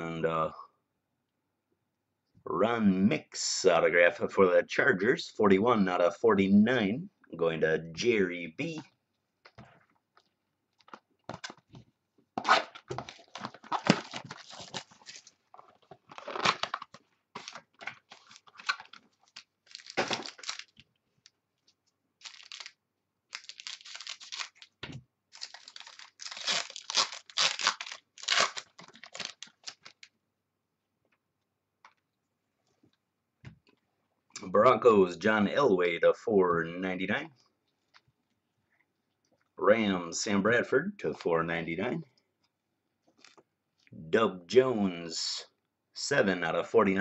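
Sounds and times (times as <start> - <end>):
packaging tearing and crinkling: 12.4 - 20.8, 22.2 - 30.1.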